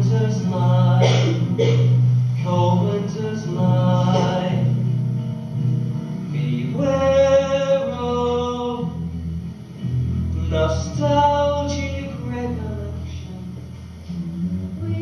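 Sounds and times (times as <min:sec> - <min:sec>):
man and women singing in harmony: 0:00.0 - 0:01.8, 0:02.5 - 0:04.7.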